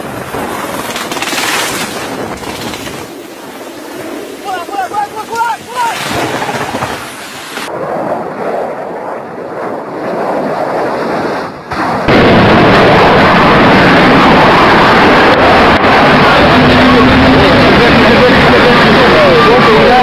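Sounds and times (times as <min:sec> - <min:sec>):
jet engines roaring with afterburner: 0:00.0 - 0:20.0
rumbling crash noise: 0:11.7 - 0:15.6.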